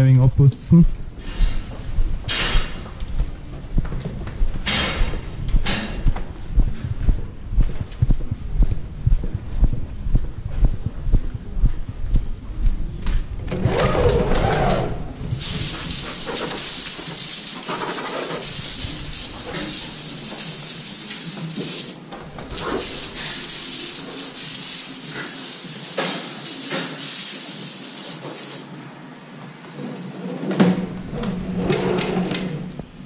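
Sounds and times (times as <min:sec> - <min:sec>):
hose water spraying on boots: 0:15.3 - 0:28.7.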